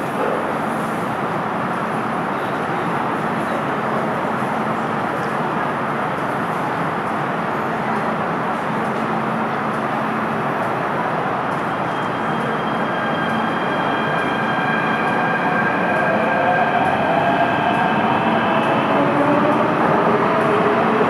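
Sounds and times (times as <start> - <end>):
train wheels rumbling: 5.0 - 21.0.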